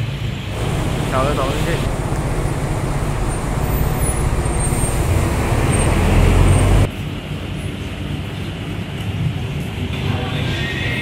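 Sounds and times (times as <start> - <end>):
traffic hum: 0.2 - 7.3
passing vehicle engine rumble: 0.5 - 6.9.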